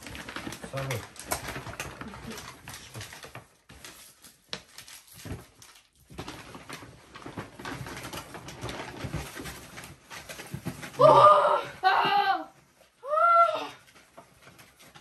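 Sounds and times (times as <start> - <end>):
paper bags rustling: 0.0 - 11.1.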